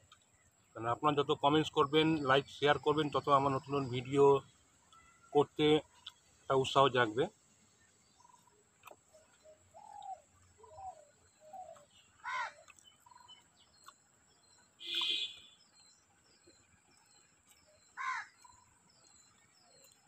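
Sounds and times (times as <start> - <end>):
birds calling: 0.0 - 20.0
sharp bird chirp: 8.2 - 20.0.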